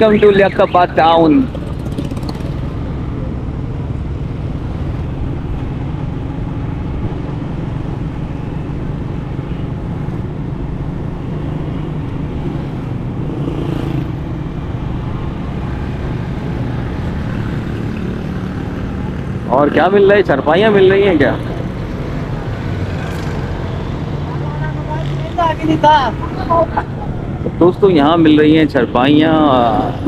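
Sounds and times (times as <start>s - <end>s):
road noise rumble: 0.0s - 30.0s
traffic: 0.0s - 30.0s
motorcycle engine running: 1.2s - 3.3s.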